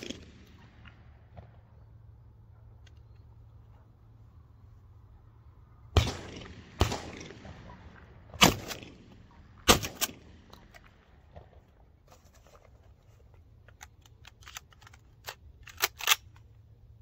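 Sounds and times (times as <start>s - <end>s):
shotgun shots: 0.0s - 1.8s, 5.9s - 11.6s.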